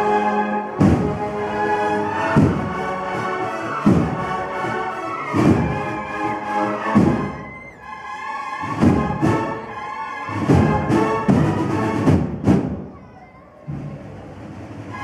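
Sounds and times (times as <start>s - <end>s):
brass band playing a march: 0.0s - 12.8s, 14.5s - 15.0s
heavy drum strokes: 0.7s - 6.0s, 6.8s - 7.5s, 8.6s - 9.7s, 10.3s - 12.9s.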